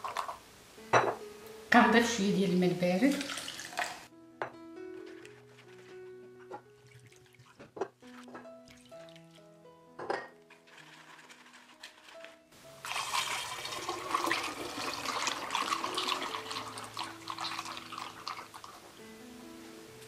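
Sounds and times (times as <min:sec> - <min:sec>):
background music: 0:00.0 - 0:20.0
juice splashing into a glass jar: 0:03.2 - 0:04.1, 0:06.8 - 0:09.5, 0:12.8 - 0:18.8.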